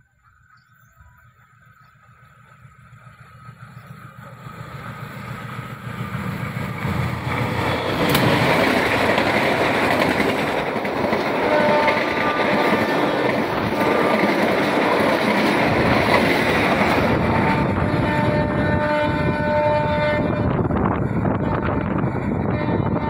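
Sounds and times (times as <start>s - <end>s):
train passing on rails: 0.0s - 23.0s.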